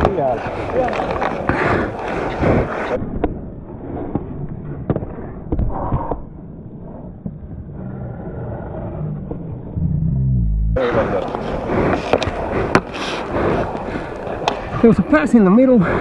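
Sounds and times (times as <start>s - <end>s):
skate blades scraping ice: 0.0s - 3.0s
sticks and puck clacking: 0.0s - 3.0s, 11.2s - 14.7s.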